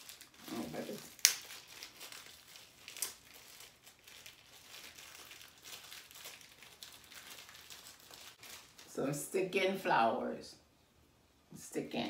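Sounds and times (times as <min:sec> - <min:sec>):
packet crinkling: 0:00.0 - 0:09.0.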